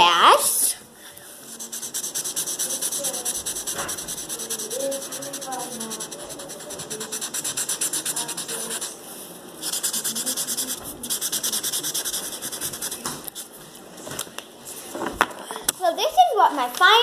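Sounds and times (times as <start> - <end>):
pen scribbling on paper: 1.5 - 9.0, 9.6 - 13.5.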